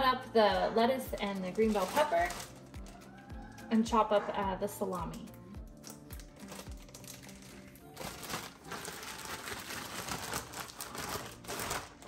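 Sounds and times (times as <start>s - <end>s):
plastic bag crinkling: 1.1s - 3.3s, 5.7s - 12.0s.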